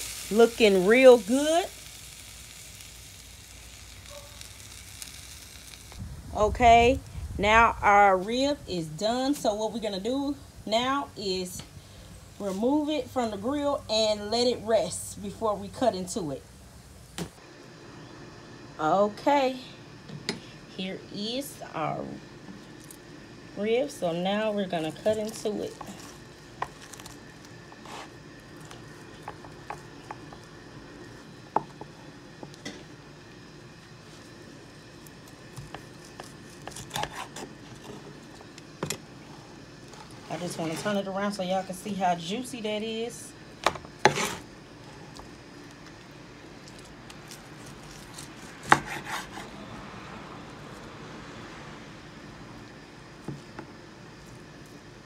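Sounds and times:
knife cutting ribs: 35.6 - 38.1, 44.0 - 44.4, 47.3 - 49.6.

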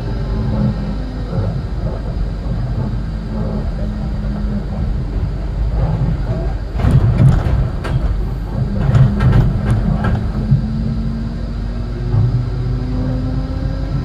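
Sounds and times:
low hum: 0.0 - 14.0
tram wheels rumbling on rail: 0.0 - 14.0
sharp knocks: 6.8 - 10.7.

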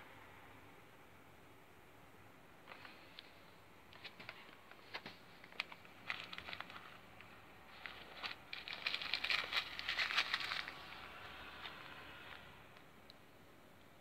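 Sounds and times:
plastic bags crinkling and clicking: 3.9 - 12.5.

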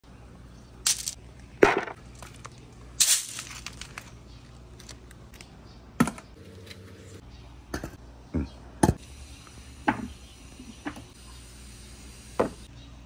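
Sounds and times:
glass marbles clattering: 0.9 - 1.2.

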